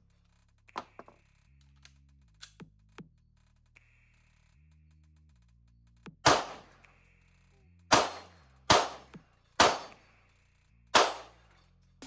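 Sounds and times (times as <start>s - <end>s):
quiet background music: 0.0s - 12.0s
pistol shots: 6.2s - 6.8s, 7.9s - 10.0s, 11.0s - 11.4s.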